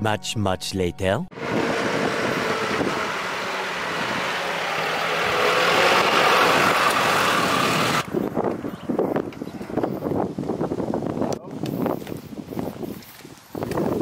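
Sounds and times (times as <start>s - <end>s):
truck road noise: 1.3s - 9.0s.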